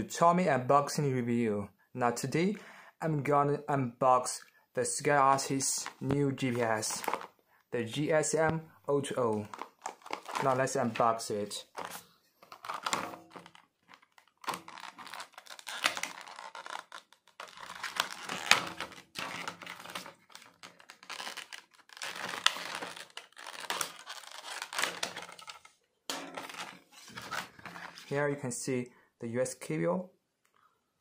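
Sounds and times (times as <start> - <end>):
plastic crackling: 5.6 - 7.4, 9.3 - 28.2
knife cutting plastic packaging: 9.5 - 10.7, 11.8 - 25.7.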